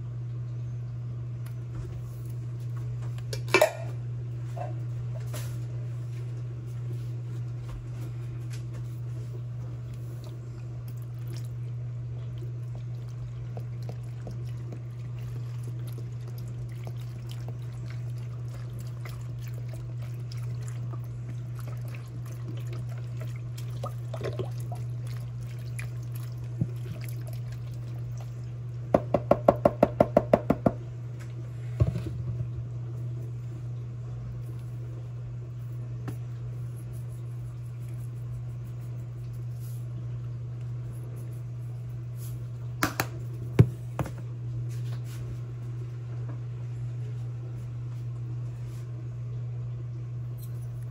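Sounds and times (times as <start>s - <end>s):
low hum: 0.0s - 29.2s
broth pouring: 9.9s - 28.8s.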